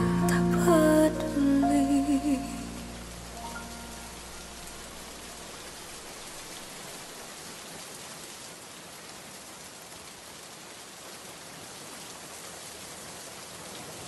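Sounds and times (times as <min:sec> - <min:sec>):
slow song: 0:00.0 - 0:05.7
steady rain falling: 0:00.0 - 0:14.0.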